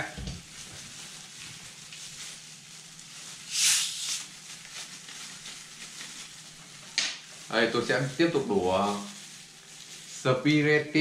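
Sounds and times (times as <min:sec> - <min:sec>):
faint fizz: 0:03.3 - 0:04.4
hiss of escaping gas: 0:03.4 - 0:04.3.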